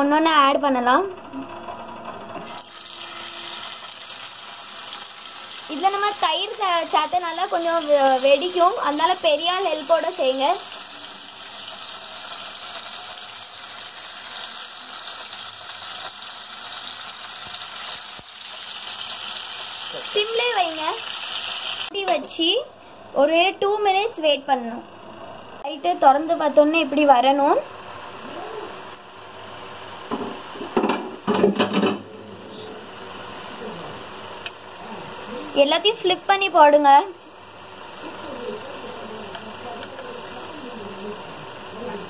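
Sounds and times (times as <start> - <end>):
paneer sizzling in hot oil: 2.4 - 22.1, 25.6 - 42.0
clattering in pan: 30.1 - 32.1.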